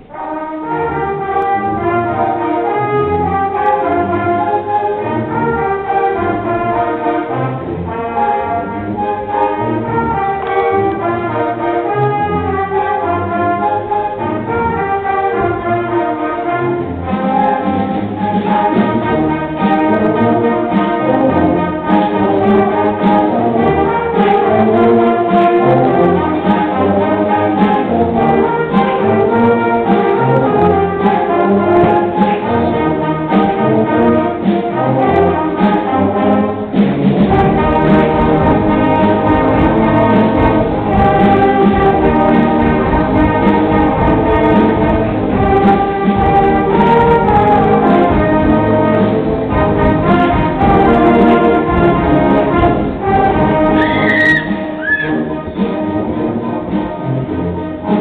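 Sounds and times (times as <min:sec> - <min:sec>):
concert band playing: 0:00.0 - 0:58.0
drum beat of sharp strokes: 0:31.0 - 0:57.1.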